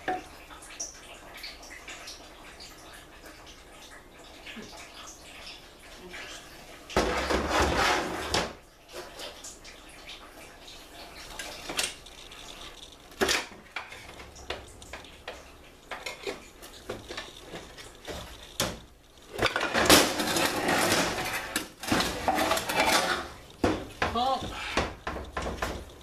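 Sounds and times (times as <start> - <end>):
rough rubbing noise: 7.1 - 8.5, 19.6 - 23.6.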